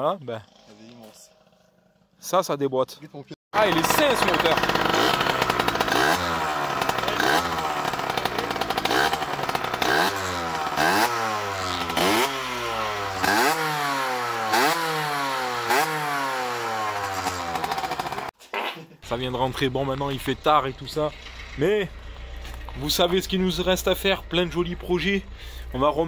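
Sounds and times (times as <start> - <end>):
two-stroke engine revving: 0.4 - 2.1, 3.5 - 18.4, 19.1 - 26.0.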